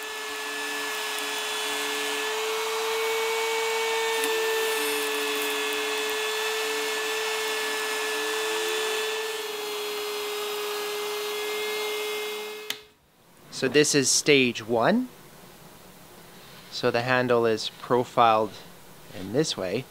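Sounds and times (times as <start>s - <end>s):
router bit rasping wood: 0.0s - 12.7s
router motor whining: 0.0s - 12.8s.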